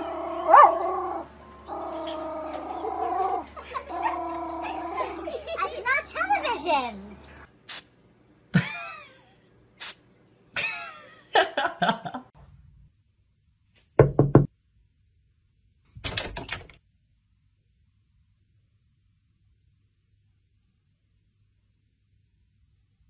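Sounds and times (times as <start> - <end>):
knocking: 14.0 - 14.5.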